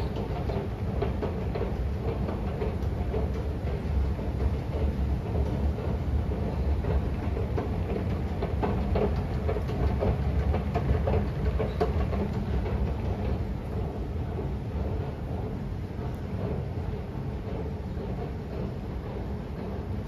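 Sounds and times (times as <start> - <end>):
light clicking and clatter: 0.0 - 20.0
rail station rumble: 0.0 - 20.0.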